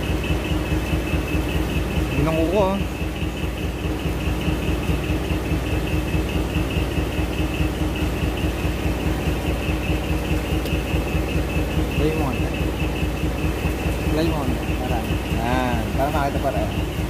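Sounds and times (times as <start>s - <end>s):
engine idling: 0.0s - 17.0s.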